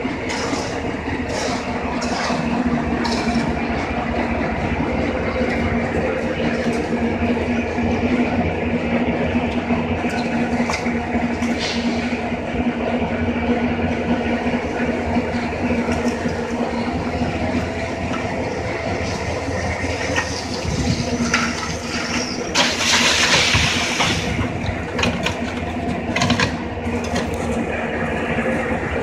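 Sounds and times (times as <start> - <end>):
wheelbarrow clanks and scrapes: 0.2 - 3.9, 20.1 - 27.6
loud hissing rush: 21.9 - 24.4.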